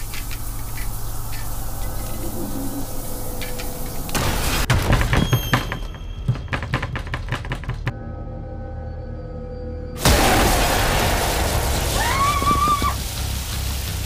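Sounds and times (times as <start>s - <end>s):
clicking knocks and thuds: 4.7s - 8.0s
low steady drone: 7.9s - 10.1s
burst of noise: 10.0s - 14.0s.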